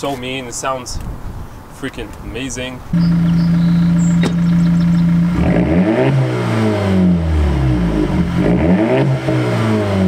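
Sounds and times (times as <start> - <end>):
car exhaust revving: 3.0 - 10.0.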